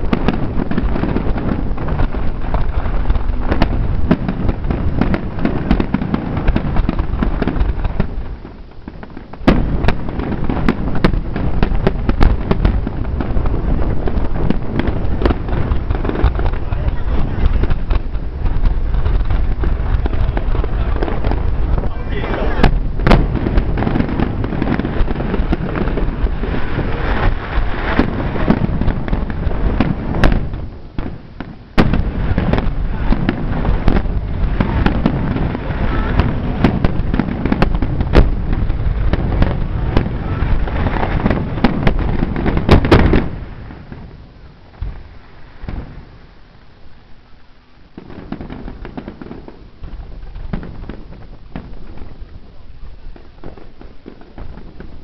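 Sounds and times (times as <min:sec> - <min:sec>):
faint fireworks pops: 0:00.0 - 0:55.0
fireworks booming and crackling: 0:00.0 - 0:55.0.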